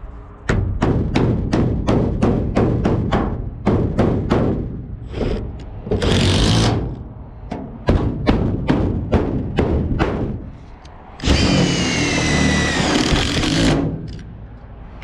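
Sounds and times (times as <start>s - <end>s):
hammer knocking on hollow metal: 0.5s - 4.9s, 7.5s - 10.4s.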